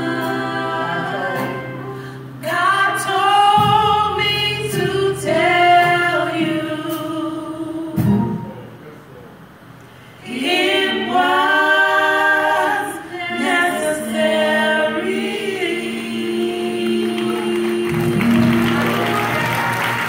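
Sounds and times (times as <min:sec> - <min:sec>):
women singing in harmony: 0:00.0 - 0:08.2, 0:10.2 - 0:18.8
applause: 0:17.0 - 0:20.0.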